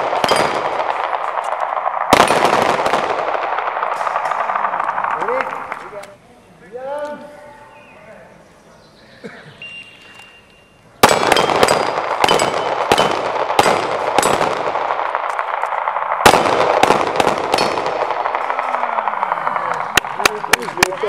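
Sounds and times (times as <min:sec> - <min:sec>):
handgun shots echoing: 0:00.0 - 0:01.2, 0:11.0 - 0:15.6, 0:16.3 - 0:18.6
steel targets ringing: 0:11.1 - 0:13.3.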